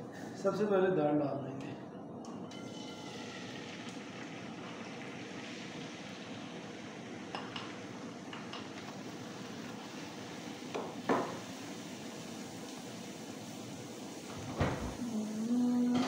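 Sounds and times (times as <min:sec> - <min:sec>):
steady hiss: 0:03.1 - 0:16.0.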